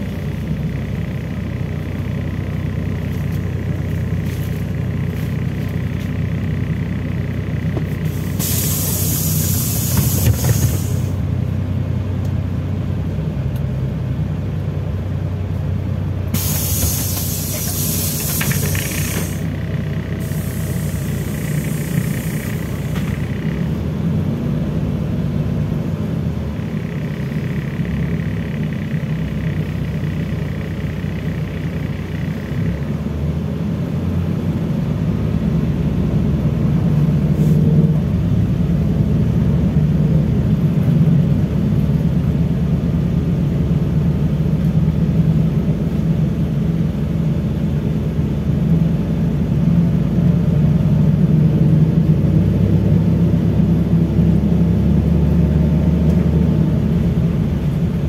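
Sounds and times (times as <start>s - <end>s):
bus engine droning: 0.0s - 58.0s
air brake hissing: 8.0s - 11.2s, 16.3s - 19.5s, 20.2s - 23.2s, 37.3s - 37.7s.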